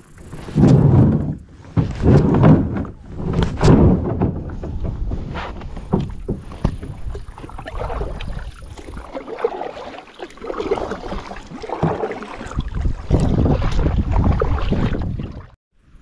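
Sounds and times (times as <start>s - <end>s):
paddle splashing through water: 0.2s - 15.6s
small knocks on hull: 0.4s - 9.1s.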